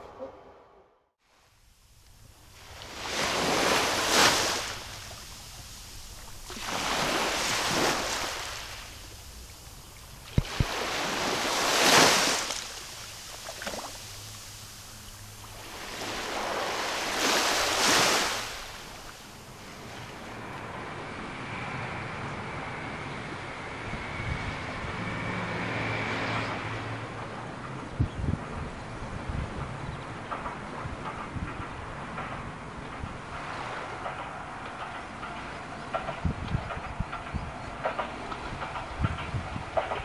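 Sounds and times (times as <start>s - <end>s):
small waves on sandy beach: 2.3s - 21.0s.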